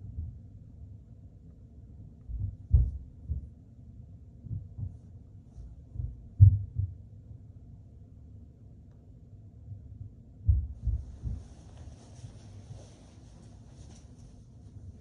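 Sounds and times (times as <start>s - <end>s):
phone microphone jostled thuds: 2.3s - 3.5s, 5.9s - 7.0s, 10.5s - 12.2s.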